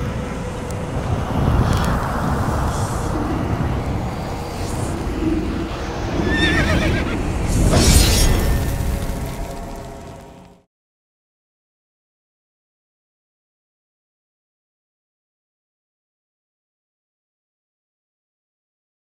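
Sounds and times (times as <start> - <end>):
low drone: 0.0 - 10.7
horse whinnying: 6.2 - 7.2.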